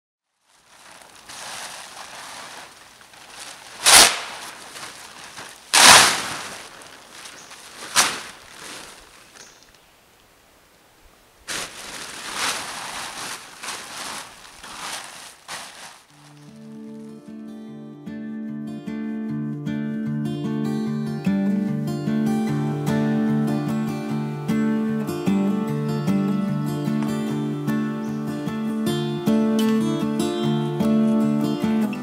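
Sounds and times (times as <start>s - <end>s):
tarp ripping: 0.3s - 9.4s, 11.5s - 17.2s
tarp crackling and rustling: 0.3s - 9.8s, 11.2s - 17.4s
tarp crinkling: 0.3s - 9.8s, 11.3s - 17.5s.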